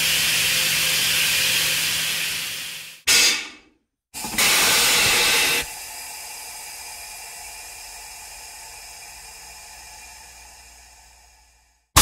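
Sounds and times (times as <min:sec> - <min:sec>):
compressed air hissing: 0:04.2 - 0:08.4.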